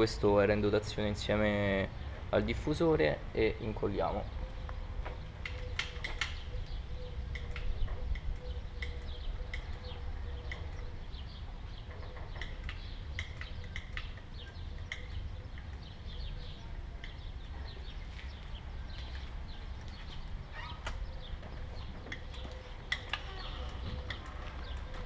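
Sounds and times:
small birds chirping: 0:00.1 - 0:25.0
sharp clicks: 0:04.6 - 0:10.9.

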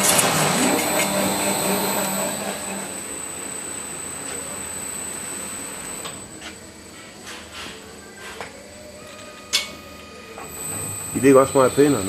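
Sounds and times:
high machine whine: 0:00.0 - 0:12.0
machine hiss and hum: 0:00.0 - 0:12.0.

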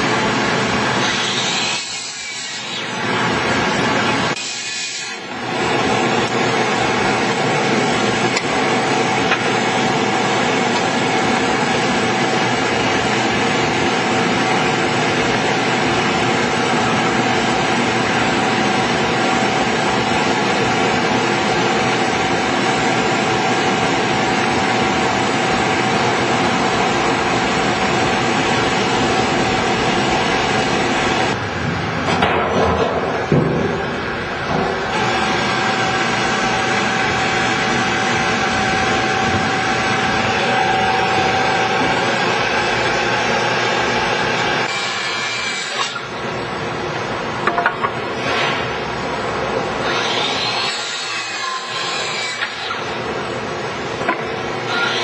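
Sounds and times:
constant whine: 0:05.3 - 0:44.7.

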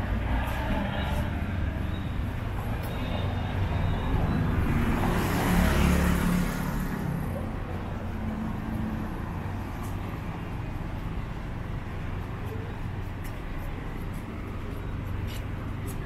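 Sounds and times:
street traffic: 0:00.0 - 0:16.0
vehicle passing close by: 0:03.6 - 0:07.5.

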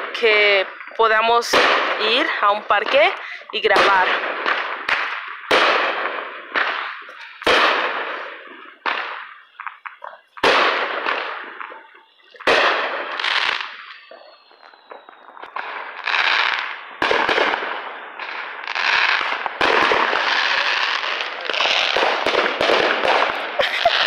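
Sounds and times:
fireworks bangs: 0:00.0 - 0:24.0.

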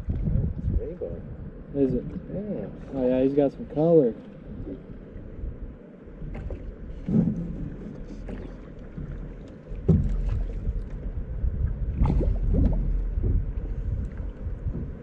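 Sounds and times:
low rumble: 0:00.0 - 0:15.0
water moving against boat hull: 0:00.0 - 0:15.0
knocks on boat hull: 0:09.8 - 0:10.6.

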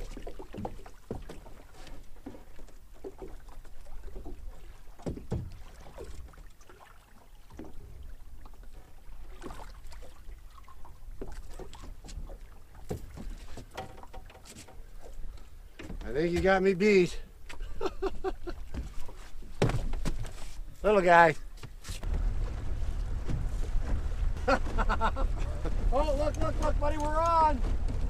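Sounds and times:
water lapping against boat hull: 0:00.0 - 0:28.0
low wind rumble: 0:22.0 - 0:28.0
knocks and clicks of gear: 0:26.3 - 0:28.0.

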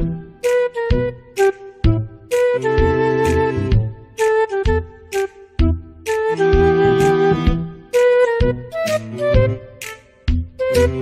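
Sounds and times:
quick melody with drum hits: 0:00.0 - 0:11.0.

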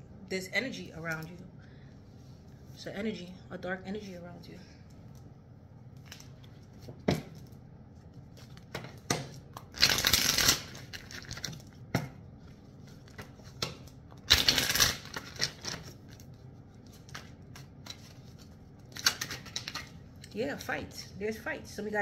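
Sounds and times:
cards being shuffled: 0:09.6 - 0:11.7.

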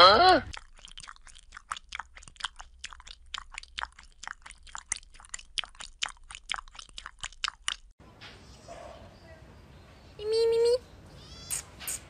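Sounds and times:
cat lapping water: 0:00.4 - 0:08.0.

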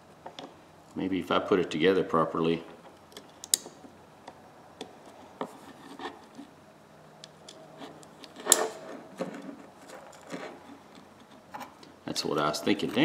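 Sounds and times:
small metal clicks and scraping: 0:02.7 - 0:06.5, 0:07.2 - 0:13.0.

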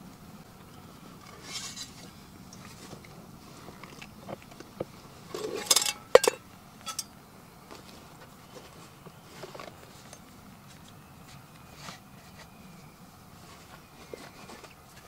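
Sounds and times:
gear clinking: 0:05.3 - 0:07.2.

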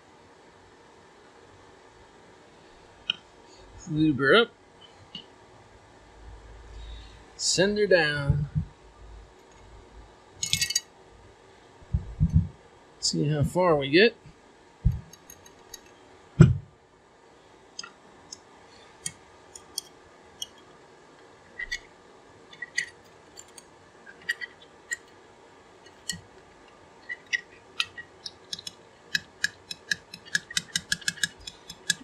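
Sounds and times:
dull thump: 0:16.4 - 0:16.7
light metallic clicks and taps: 0:27.2 - 0:32.0.

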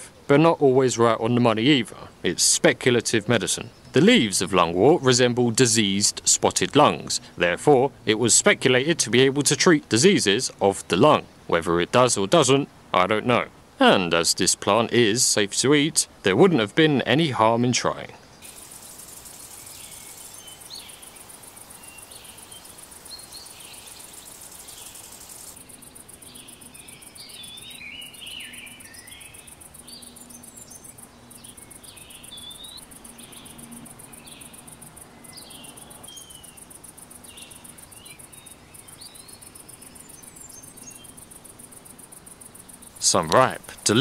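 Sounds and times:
birds chirping: 0:00.0 - 0:44.0
insects trilling: 0:18.3 - 0:44.0.

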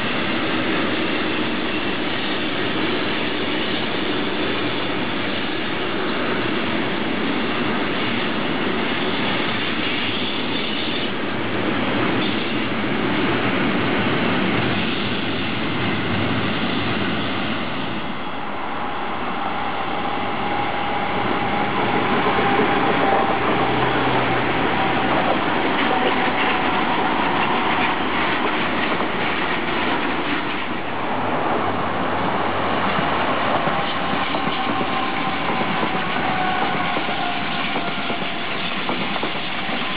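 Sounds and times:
trains rolling past: 0:00.0 - 0:39.9
wheel clatter over rail joints: 0:21.5 - 0:31.0.

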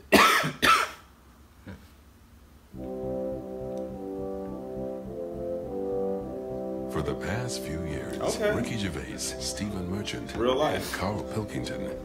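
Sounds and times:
slow sustained chord music: 0:02.7 - 0:12.0
person speaking: 0:06.9 - 0:12.0.

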